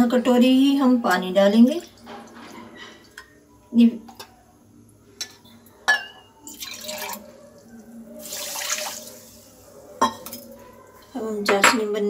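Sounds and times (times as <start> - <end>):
water splashing into pan: 8.2 - 9.1.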